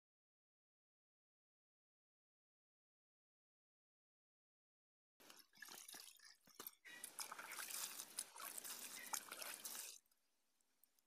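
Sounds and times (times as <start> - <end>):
water splashing in metal basin: 5.2 - 10.0.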